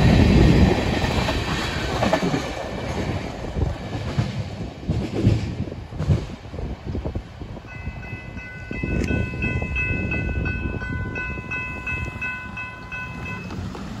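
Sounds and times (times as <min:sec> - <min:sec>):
freight train rumbling: 0:00.0 - 0:14.0
crossing bell ringing: 0:07.7 - 0:14.0.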